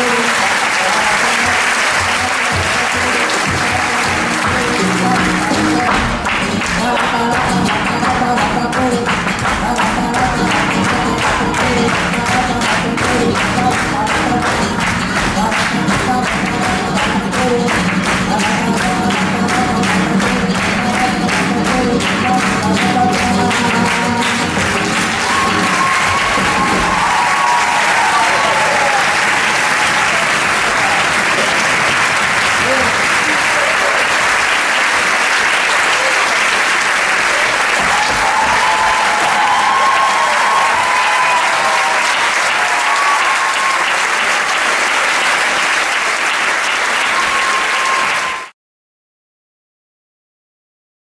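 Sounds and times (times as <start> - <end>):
audience applauding: 0.0 - 48.6.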